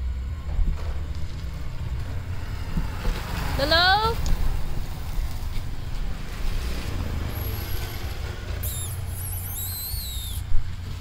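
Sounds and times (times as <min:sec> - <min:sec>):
wind rumble on microphone: 0:00.0 - 0:11.0
high bending squeaks: 0:07.2 - 0:10.5.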